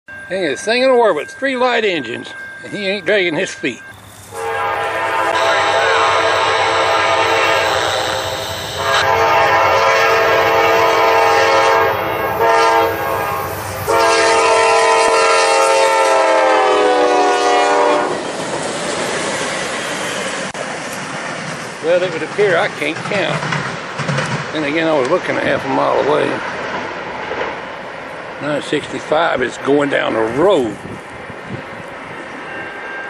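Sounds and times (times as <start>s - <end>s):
locomotive engines rumbling: 0.1s - 33.0s
locomotive air horn blasts: 4.3s - 18.2s.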